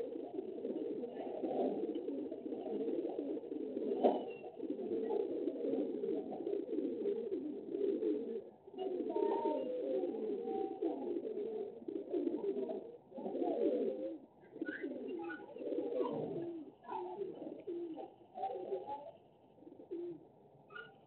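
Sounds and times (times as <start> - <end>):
low-pitched bird calls: 14.4 - 19.2.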